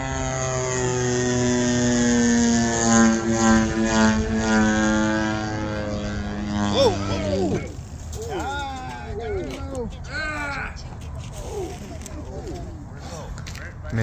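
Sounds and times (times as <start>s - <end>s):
model airplane engine running: 0.0s - 9.2s
person shouting: 6.7s - 9.5s.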